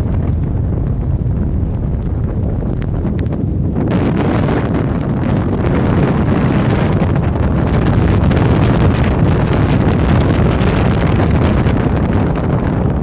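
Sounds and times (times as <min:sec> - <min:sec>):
strong wind on microphone: 0:00.0 - 0:13.0.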